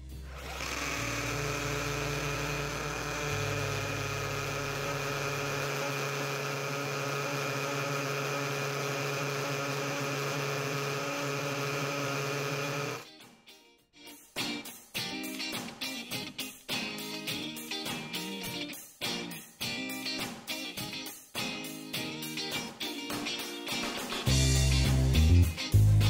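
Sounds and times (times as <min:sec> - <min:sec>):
hammer drill boring into stone: 0:00.1 - 0:13.0.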